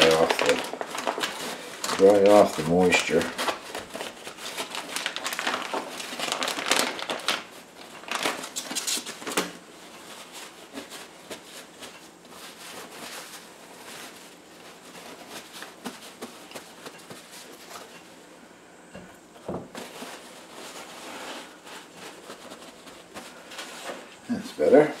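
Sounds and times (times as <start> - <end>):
plastic bag crinkling: 0.0 - 18.3, 19.3 - 25.0
paper towels rustling: 0.0 - 18.6, 19.2 - 25.0.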